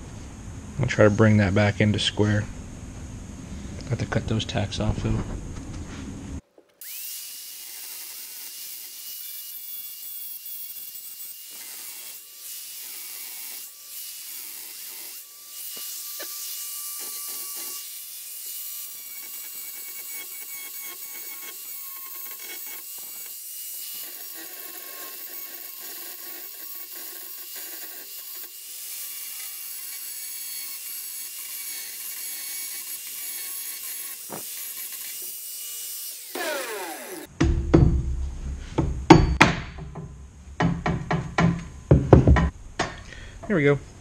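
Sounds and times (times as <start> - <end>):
electric grinder cutting metal: 6.8 - 37.3.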